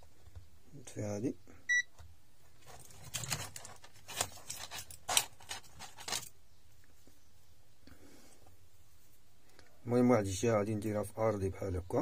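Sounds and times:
hands rummaging on a workbench: 2.5s - 6.4s.

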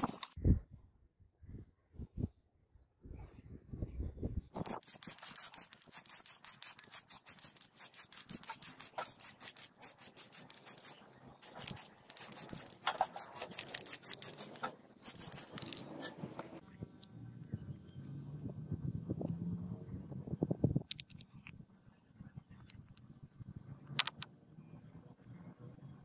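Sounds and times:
scratching on hard surface: 0.0s - 0.4s, 4.6s - 16.6s.

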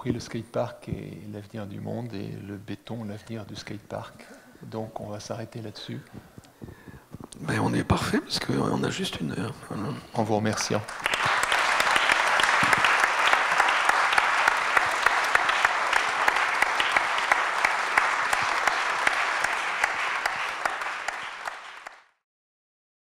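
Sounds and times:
audience applauding: 10.6s - 22.2s.

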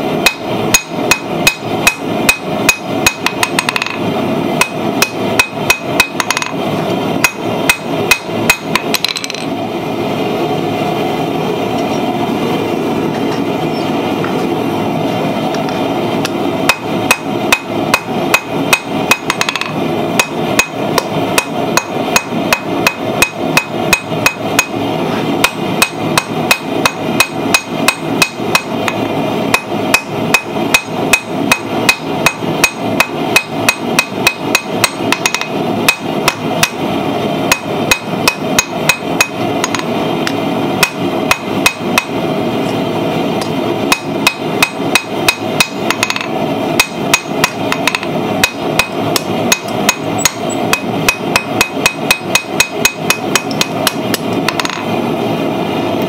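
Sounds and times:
steady background noise: 0.0s - 56.0s
hammer striking steel on anvil: 0.2s - 4.0s, 4.6s - 6.6s, 7.2s - 9.5s, 16.2s - 24.8s, 25.4s - 36.8s, 37.5s - 39.9s, 40.8s - 42.2s, 43.4s - 54.9s.

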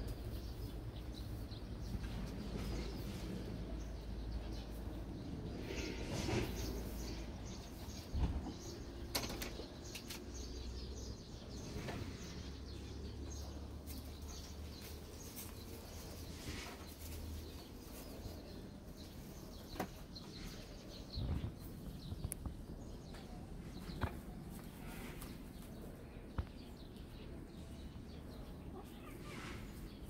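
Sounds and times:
kittens scuffling and tapping: 13.6s - 26.9s.

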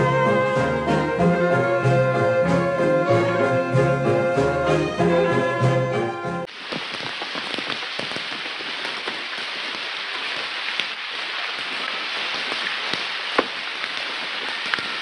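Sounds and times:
steady rain falling: 6.4s - 15.0s
single raindrops hitting close by: 6.5s - 15.0s.

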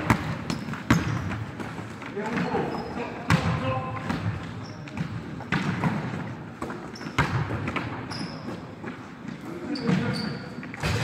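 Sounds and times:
basketball bouncing on wooden floor: 0.0s - 1.5s, 3.3s - 8.0s
sneaker squeaks: 0.0s - 1.7s, 2.3s - 11.0s
players' voices: 1.4s - 5.4s.

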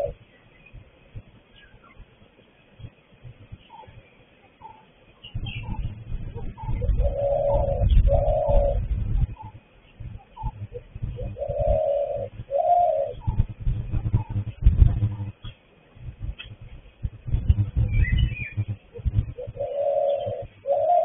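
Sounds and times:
dove cooing: 0.0s - 0.2s, 4.6s - 15.4s, 17.7s - 21.0s
faint bird chirps: 0.0s - 2.1s, 3.4s - 15.5s, 17.5s - 21.0s
low rumble: 5.4s - 20.6s.

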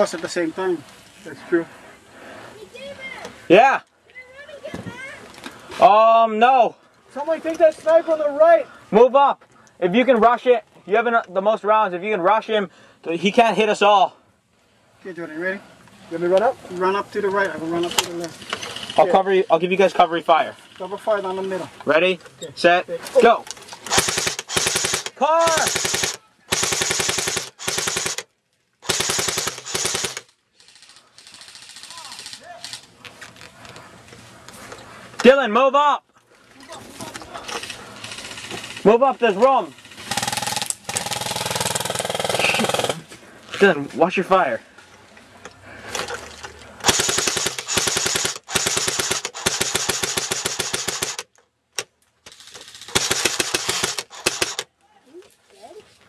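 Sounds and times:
airsoft rifle bursts: 23.8s - 33.0s, 37.6s - 39.0s, 39.8s - 43.0s, 46.8s - 51.3s, 52.3s - 54.7s
person shouting: 25.2s - 25.7s.

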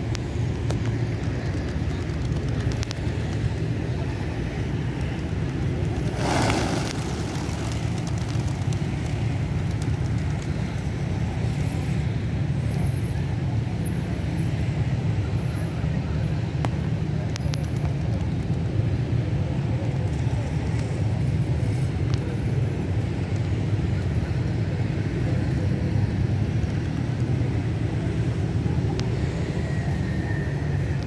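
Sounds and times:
road traffic rumble: 0.0s - 31.0s
pigeons wing flapping: 0.8s - 3.7s, 5.0s - 10.8s.

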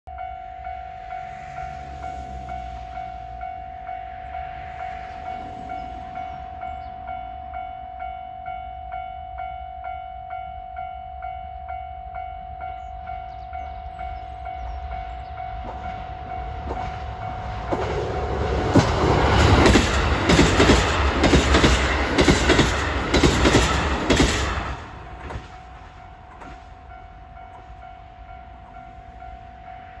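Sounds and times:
diesel train passing: 0.1s - 30.0s
wheels clacking over rail joints: 15.6s - 27.8s.

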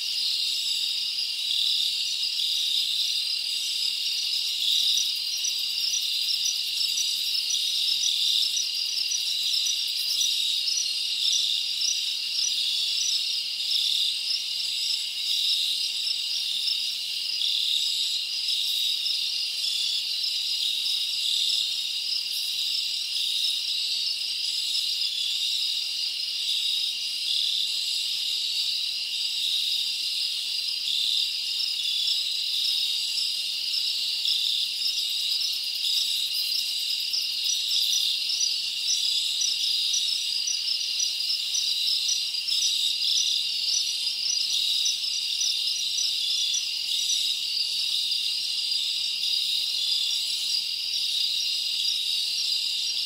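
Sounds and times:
insects chirping: 0.0s - 53.0s.

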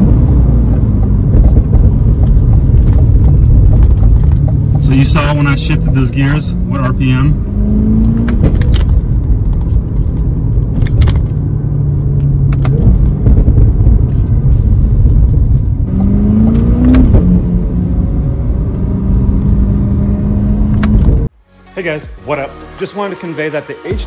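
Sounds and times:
exhaust pops: 0.0s - 7.3s, 8.0s - 18.0s
car engine revving: 0.0s - 21.3s.

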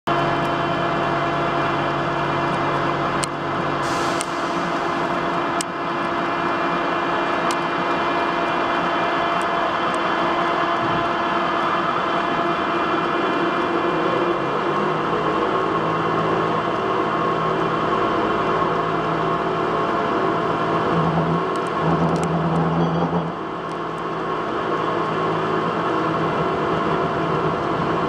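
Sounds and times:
metal lathe running: 3.8s - 24.8s.

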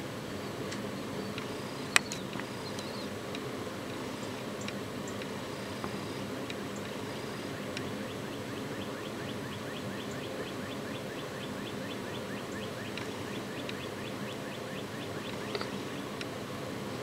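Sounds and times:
low background noise: 0.0s - 17.0s
camera autofocus ticking: 12.9s - 13.9s.

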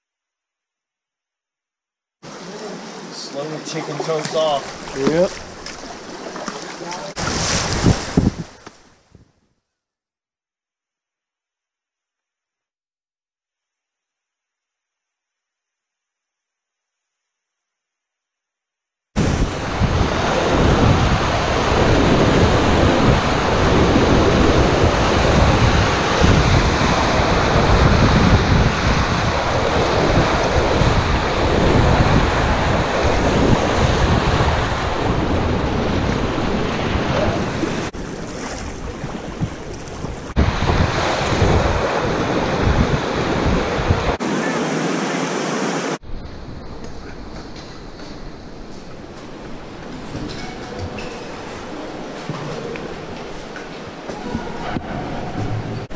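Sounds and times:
whitewater rushing and splashing: 2.2s - 8.4s, 19.2s - 46.0s.

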